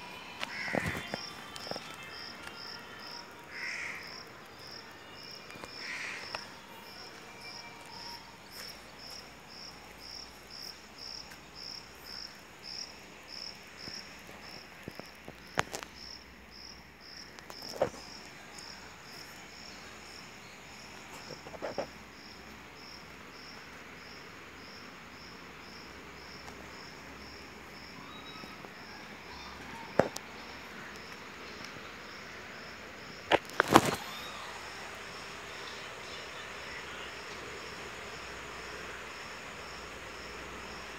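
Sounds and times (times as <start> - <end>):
insect chirping: 0.0 - 40.9.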